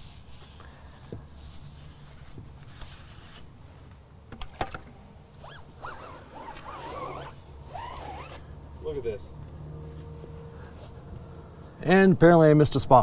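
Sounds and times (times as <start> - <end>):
wavering squeaks: 5.4 - 8.4.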